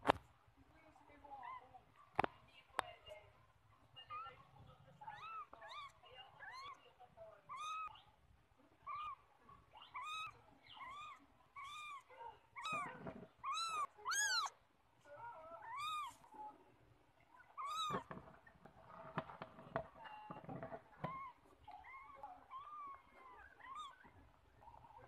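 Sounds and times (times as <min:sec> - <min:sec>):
cat meowing: 0:05.1 - 0:06.8, 0:07.5 - 0:08.0, 0:08.8 - 0:09.2, 0:09.8 - 0:14.6, 0:15.6 - 0:16.2, 0:17.4 - 0:18.1, 0:20.0 - 0:25.0.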